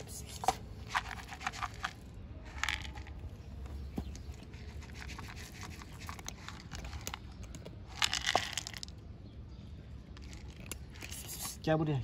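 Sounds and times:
kibble pouring onto concrete: 7.9 - 8.9.

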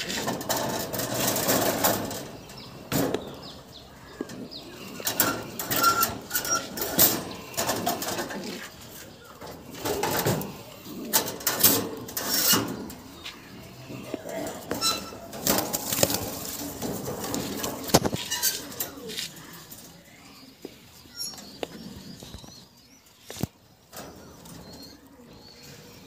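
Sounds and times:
sharp knocks and rattles: 0.0 - 3.6
pigeons cooing: 0.0 - 26.0.

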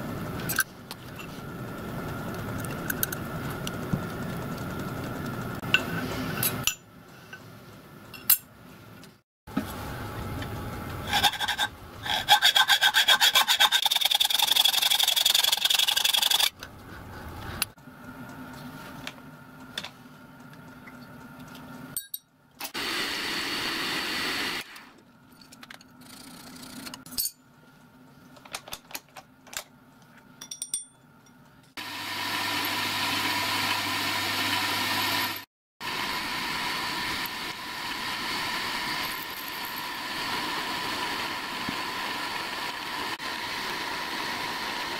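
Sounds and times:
hacksaw cutting metal: 11.1 - 16.5
milling machine humming: 31.8 - 44.9.

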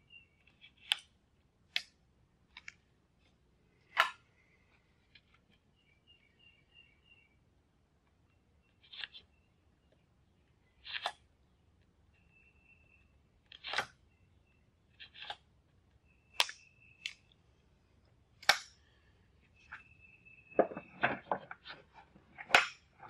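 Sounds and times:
edge banding cracking and scraping: 20.6 - 23.0.

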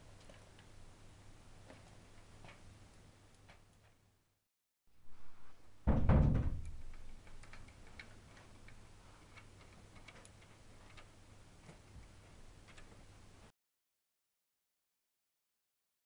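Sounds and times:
dull thump: 5.9 - 7.0
plastic toy mechanism clicking: 6.9 - 8.5.

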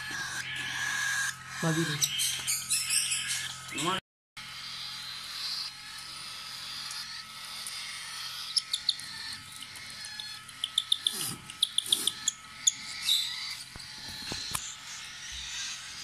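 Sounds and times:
cockatiel chick begging chirps: 7.6 - 15.8.

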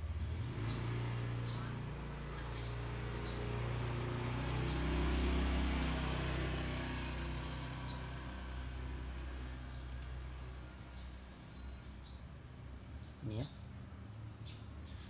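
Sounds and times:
faint clicks: 9.8 - 10.2.

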